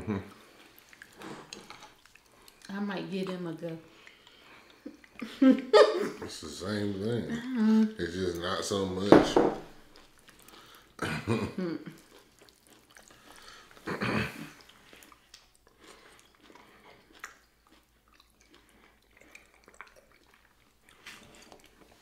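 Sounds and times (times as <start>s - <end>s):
person chewing food: 0.2s - 9.0s, 9.7s - 22.0s
person coughing: 11.0s - 11.8s, 13.9s - 14.5s.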